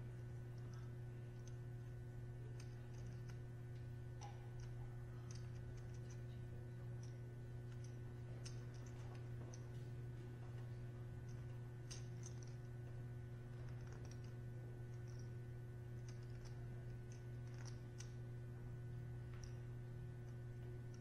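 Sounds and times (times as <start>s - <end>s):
steady low hum: 0.0s - 21.0s
clay poker chips clicking: 2.5s - 3.4s, 4.5s - 6.3s, 11.2s - 12.7s, 13.5s - 15.3s, 16.0s - 18.2s.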